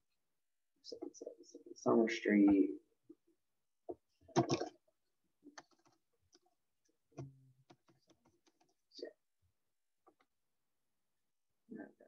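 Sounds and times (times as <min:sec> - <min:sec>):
computer keyboard typing: 0:05.5 - 0:06.5, 0:07.2 - 0:08.8.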